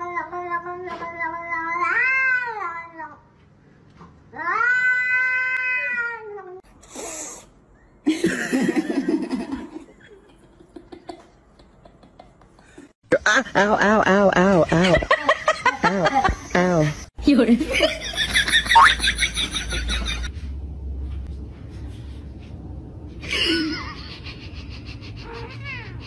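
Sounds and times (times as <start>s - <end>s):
cat yowling meows: 4.4s - 6.4s.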